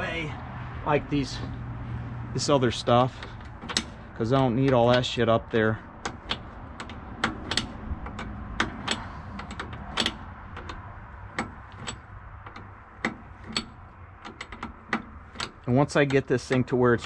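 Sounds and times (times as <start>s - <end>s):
low steady rumble: 0.0s - 17.0s
ratchet wrench clicking: 6.0s - 16.8s.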